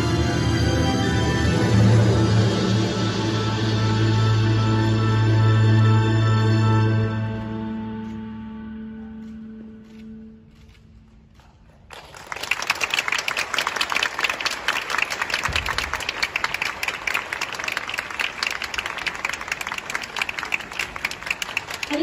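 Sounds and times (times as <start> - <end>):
performance music: 0.0 - 10.4, 12.5 - 22.0
audience applause: 11.9 - 22.0.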